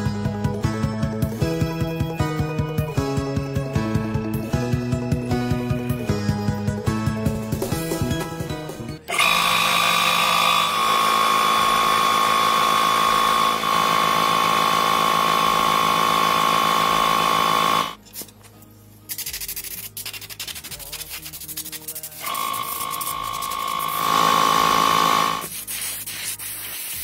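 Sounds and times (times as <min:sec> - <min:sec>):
air compressor running: 0:09.1 - 0:18.0, 0:22.2 - 0:25.5.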